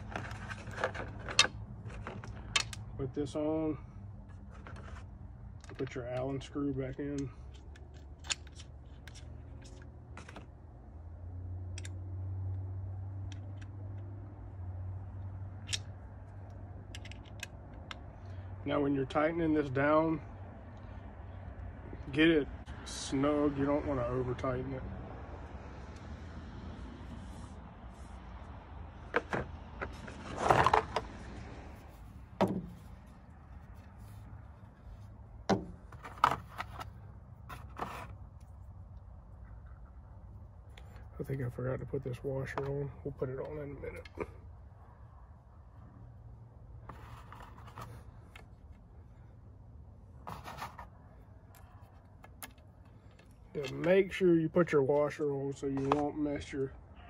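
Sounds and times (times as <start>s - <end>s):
bow parts clicking and knocking: 0.0s - 3.0s, 4.2s - 10.6s, 11.6s - 12.2s, 13.2s - 14.2s, 15.0s - 18.3s, 31.8s - 38.7s, 50.2s - 54.2s.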